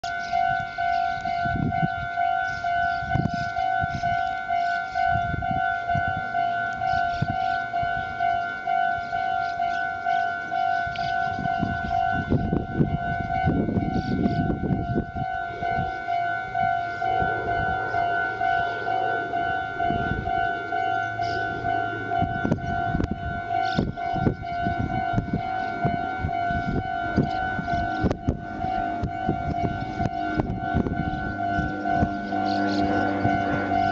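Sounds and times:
railroad crossing bell ringing: 0.0s - 33.9s
low rumbling: 12.3s - 33.9s.

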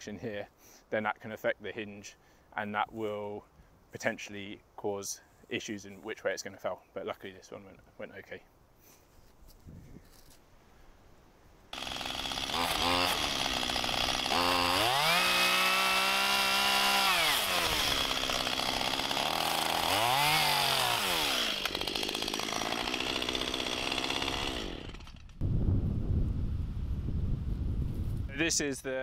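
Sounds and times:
chainsaw cutting log: 11.7s - 25.4s.

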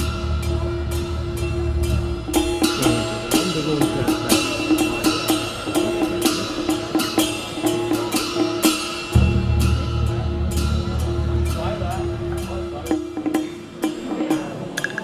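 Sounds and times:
deep bass line: 0.0s - 5.0s
drum and percussion beat: 0.0s - 15.0s.

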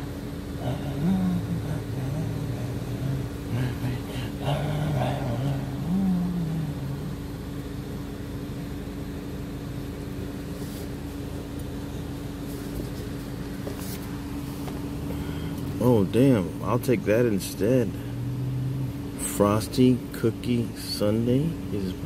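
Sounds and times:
constant tone: 0.0s - 9.3s
car engine idling: 0.0s - 22.0s.

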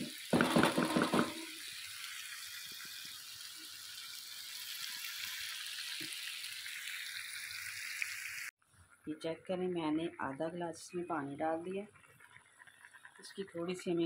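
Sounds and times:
food sizzling in oil: 0.0s - 8.5s.

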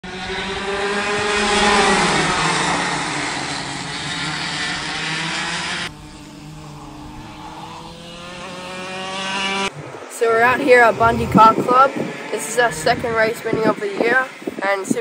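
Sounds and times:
kart engine running steadily: 0.0s - 14.6s
go-kart engines racing past: 0.0s - 15.0s.

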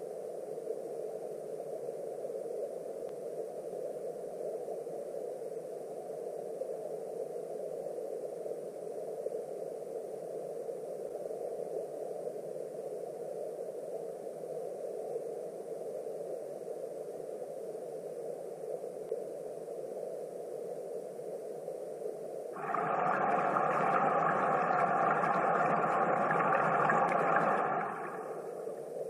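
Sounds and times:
underwater stream rush: 22.6s - 29.0s.

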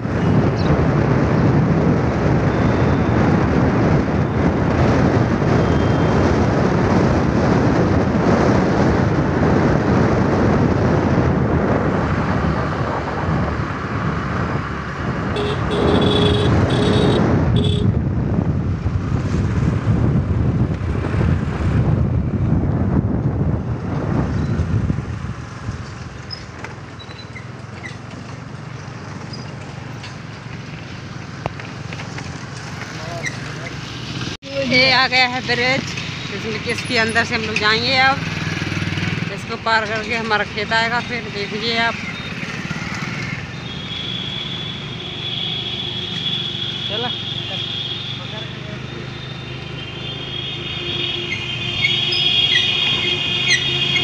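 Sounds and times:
wind rumble: 0.0s - 46.8s
vehicle road and engine noise: 0.0s - 54.0s
car horn beeps: 5.6s - 6.1s, 15.3s - 18.0s, 43.5s - 54.0s.

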